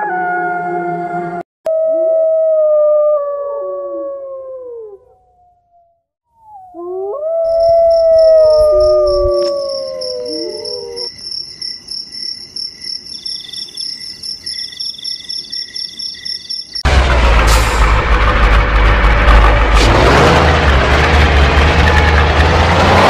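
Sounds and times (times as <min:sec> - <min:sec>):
dogs howling: 0:06.7 - 0:11.1
crickets chirping: 0:07.4 - 0:16.8
loud vehicle engine: 0:16.8 - 0:23.0.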